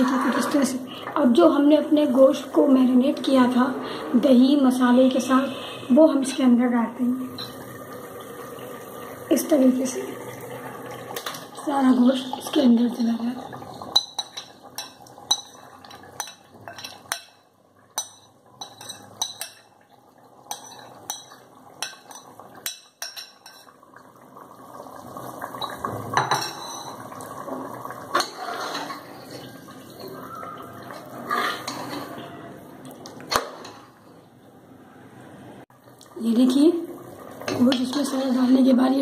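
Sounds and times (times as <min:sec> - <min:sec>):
metal scraping against pot: 0:18.0 - 0:19.7, 0:20.5 - 0:23.8, 0:25.6 - 0:27.0, 0:28.1 - 0:32.6.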